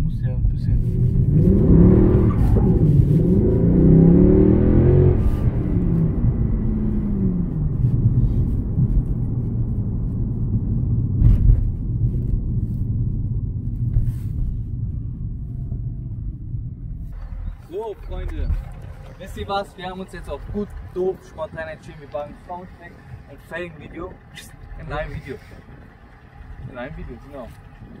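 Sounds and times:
car engine revving: 0:00.1 - 0:28.0.

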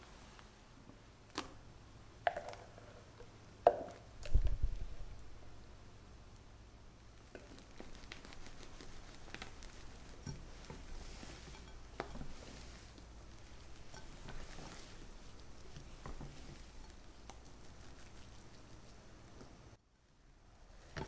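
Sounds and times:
wet squishing of batter: 0:01.2 - 0:01.6, 0:07.0 - 0:19.8.

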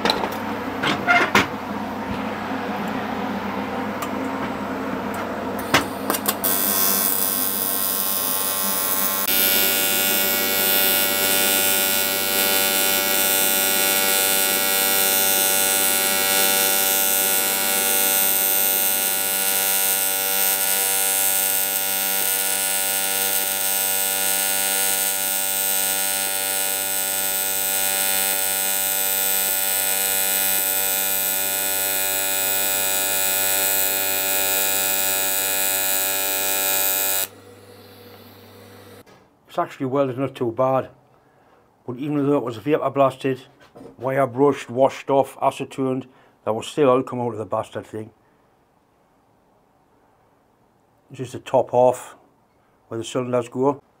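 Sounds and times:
welding arc buzzing and hissing: 0:05.6 - 0:39.0.

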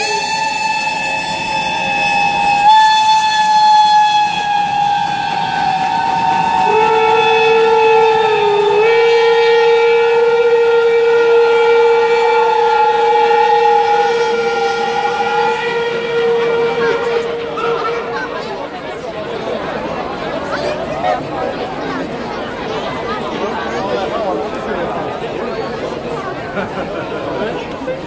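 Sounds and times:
steam locomotive whistles blowing: 0:00.0 - 0:19.0.

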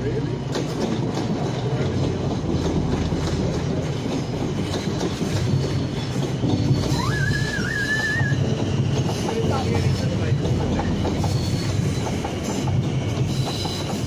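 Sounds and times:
train wheels rumbling on rails: 0:00.0 - 0:14.0
high wavering wheel squeal: 0:04.2 - 0:10.1, 0:10.7 - 0:14.0.

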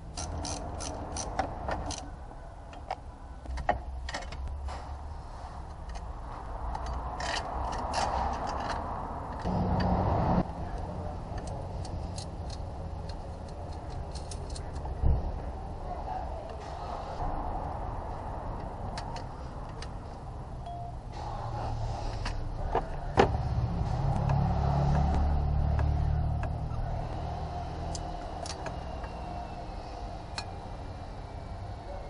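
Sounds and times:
ratchet wrench clicking: 0:00.1 - 0:02.1.

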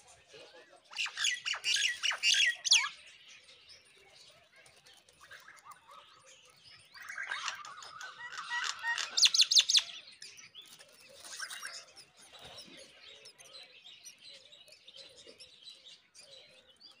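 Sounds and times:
nestlings chirping shrilly: 0:07.0 - 0:09.9.

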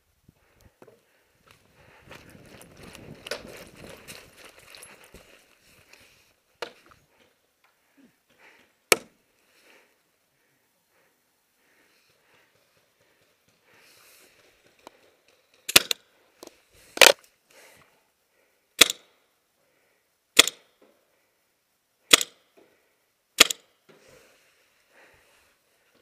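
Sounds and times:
paintball pistol shots: 0:15.7 - 0:16.0, 0:18.8 - 0:19.1, 0:20.4 - 0:20.7, 0:22.1 - 0:22.4, 0:23.4 - 0:23.7.

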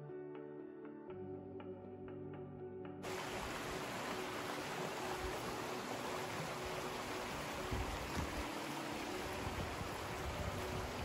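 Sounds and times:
creek water rushing over rocks: 0:03.0 - 0:11.0.

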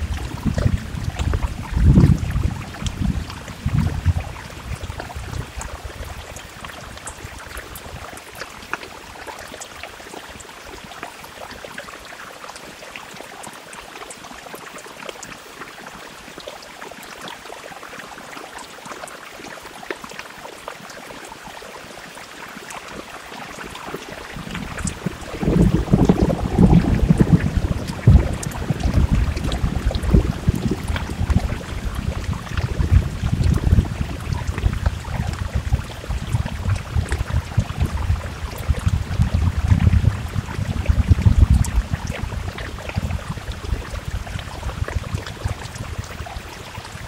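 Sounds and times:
heavy rain on window glass: 0:00.0 - 0:08.1, 0:23.0 - 0:47.0
deep low rumble: 0:24.4 - 0:46.1.

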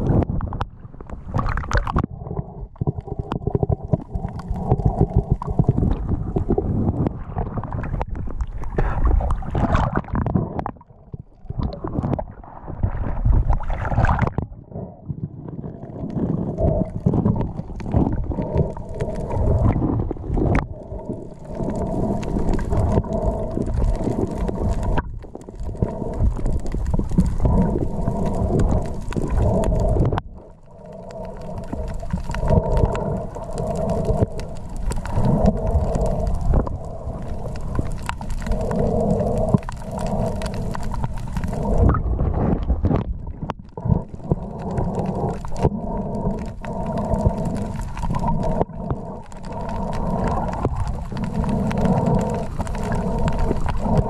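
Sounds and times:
water splashing: 0:00.0 - 0:02.1, 0:03.6 - 0:10.8, 0:11.4 - 0:14.5
muffled underwater rumble and sloshing: 0:00.0 - 0:54.0.

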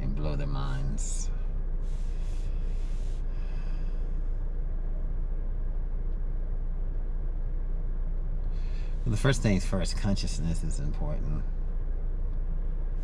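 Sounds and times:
car cabin rumble: 0:00.0 - 0:13.0
man breathing out: 0:01.9 - 0:04.1.

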